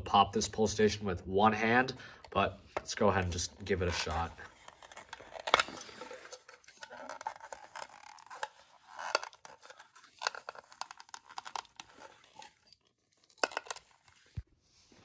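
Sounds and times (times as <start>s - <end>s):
hands rubbing plastic housing: 2.7s - 12.6s.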